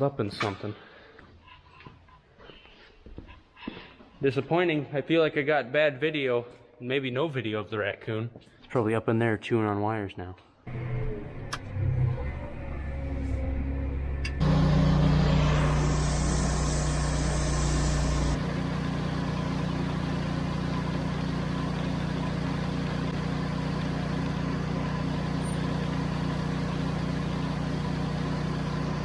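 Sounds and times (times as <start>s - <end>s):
engine hum: 10.7s - 29.0s
dry fertilizer pouring hiss: 14.4s - 28.4s.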